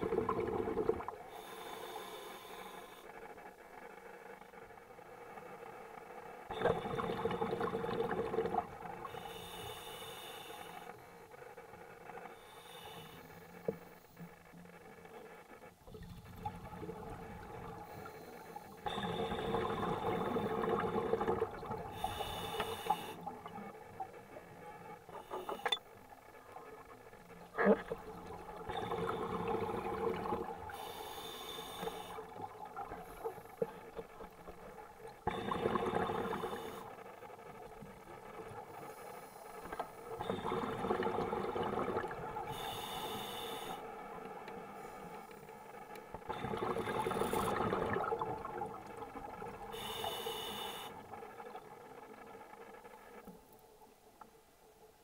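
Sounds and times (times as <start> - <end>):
exhaled bubbles rushing: 0.0 - 1.2, 6.5 - 9.0, 18.9 - 22.0, 40.2 - 42.5, 46.2 - 49.7
regulator breathing hiss: 1.3 - 3.1, 9.0 - 11.3, 12.4 - 14.2, 21.9 - 23.3, 30.7 - 32.4, 36.2 - 36.9, 42.5 - 43.9, 49.7 - 51.0.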